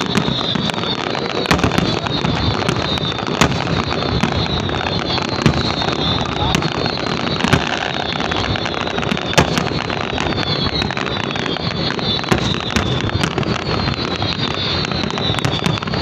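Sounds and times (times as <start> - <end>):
dense fireworks noise: 0.0 - 16.0
fireworks bangs: 0.0 - 16.0.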